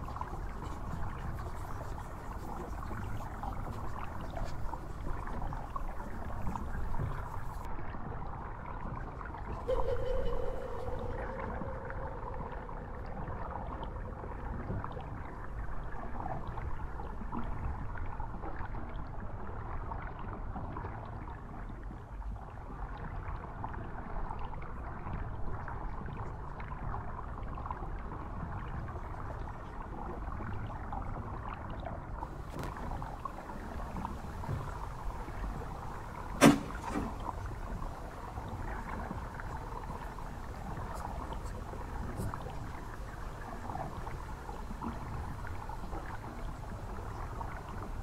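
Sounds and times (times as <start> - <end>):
short held tone: 9.7 - 13.8
low rushing rumble: 9.7 - 15.2.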